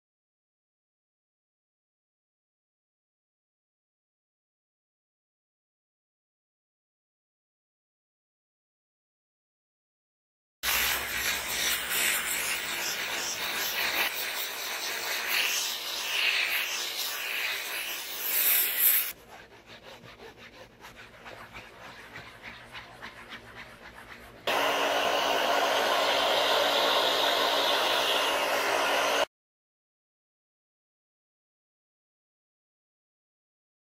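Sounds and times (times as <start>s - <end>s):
steam cleaner hissing: 10.6s - 19.2s, 24.5s - 29.3s
cloth rubbing fabric: 10.6s - 25.4s.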